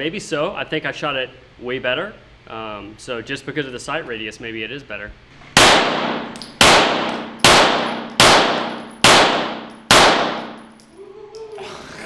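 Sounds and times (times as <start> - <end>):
pistol shots echoing indoors: 5.6 - 10.8.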